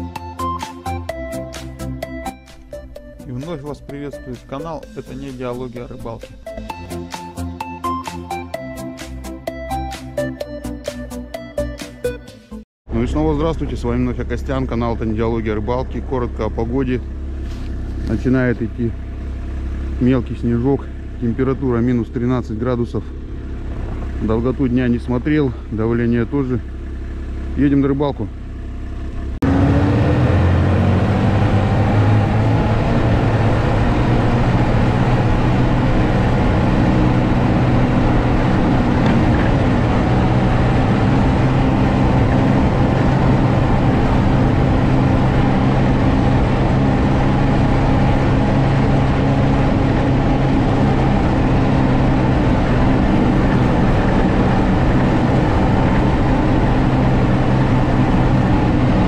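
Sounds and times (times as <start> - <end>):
snowmobile engine running: 13.1 - 59.0.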